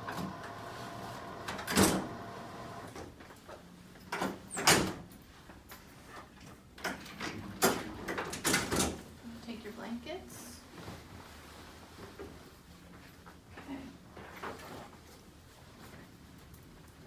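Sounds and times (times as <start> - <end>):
electric bed motor humming: 0.0 - 2.9.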